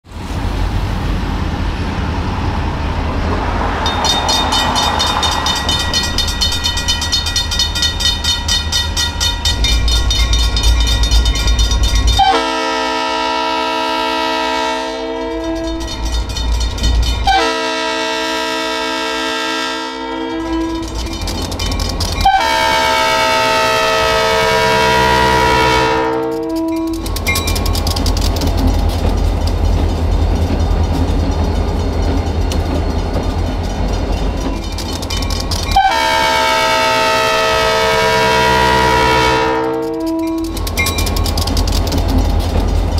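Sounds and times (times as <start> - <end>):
diesel locomotive rumbling: 0.0 - 42.9
crossing bell ringing: 3.6 - 42.9
train air horn: 12.2 - 16.0, 17.3 - 21.1, 22.2 - 27.0, 35.8 - 40.6.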